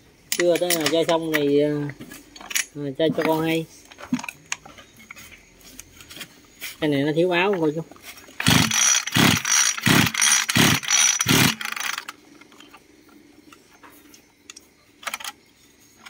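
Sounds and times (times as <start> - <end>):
engine cranking with recoil starter: 8.4 - 12.2.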